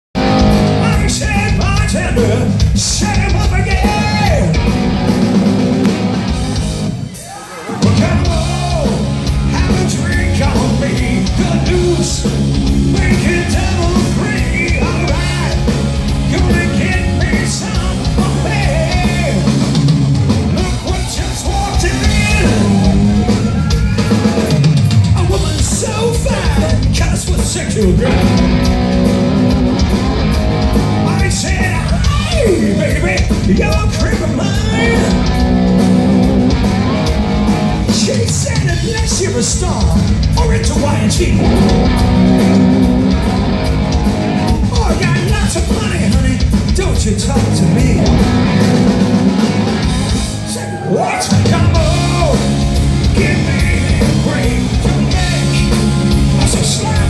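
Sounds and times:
drum kit: 0.1s - 57.0s
electric guitars: 0.2s - 57.0s
lead singer singing: 7.8s - 19.6s, 20.5s - 28.6s, 31.0s - 35.5s, 50.4s - 57.0s.

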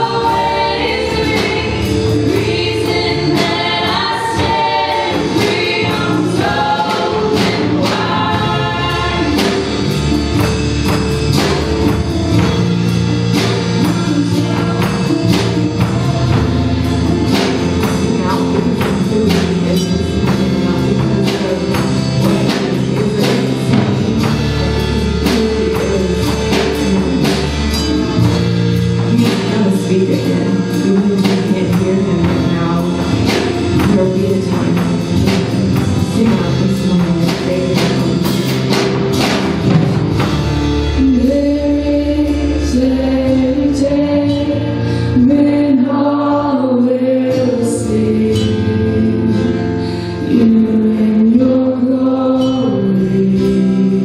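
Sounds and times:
voices singing: 0.0s - 10.2s
acoustic guitar: 0.0s - 54.0s
drum kit beat: 0.0s - 54.0s
keyboard: 0.0s - 54.0s.

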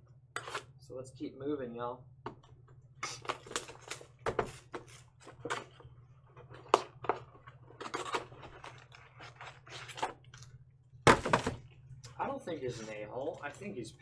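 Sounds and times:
shrink-wrap tearing and crinkling: 3.0s - 5.7s.

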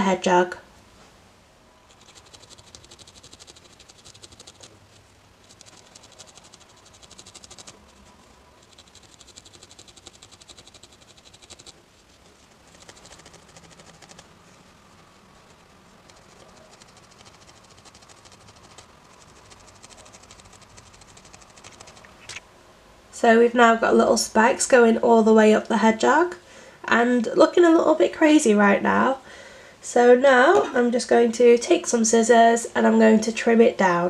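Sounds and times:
felting needle scratchy rasp: 1.9s - 22.4s.

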